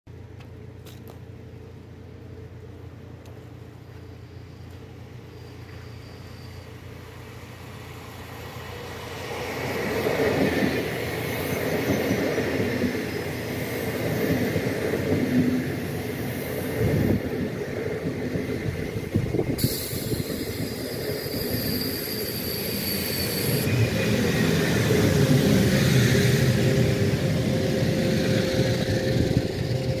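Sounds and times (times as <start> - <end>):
train wheels rumbling on rails: 0.1 - 30.0.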